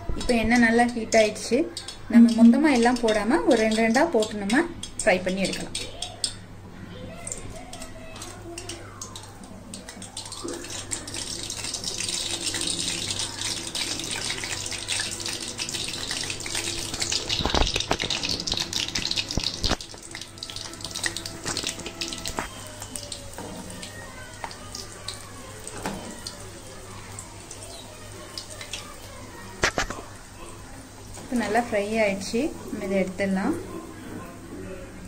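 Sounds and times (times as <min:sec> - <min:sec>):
food deep-frying in oil: 0:00.0 - 0:35.0.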